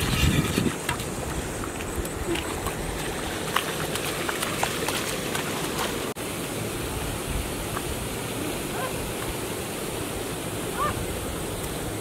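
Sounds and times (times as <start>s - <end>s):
feet wading through muddy water: 0.0s - 6.2s
rushing outdoor noise: 0.0s - 12.0s.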